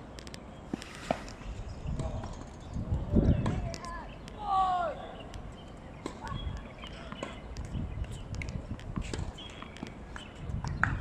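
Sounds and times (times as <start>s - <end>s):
tennis balls bouncing: 5.4s - 11.0s.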